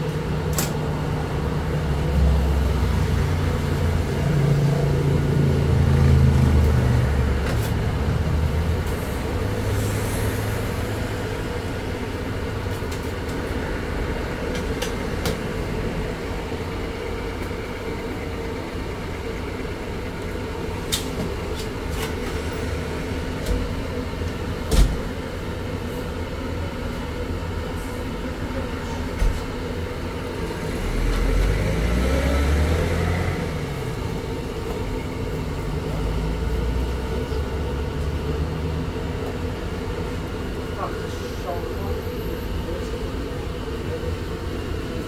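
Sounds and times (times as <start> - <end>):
street traffic hum: 0.0 - 45.0
vehicle passing by: 30.5 - 34.6.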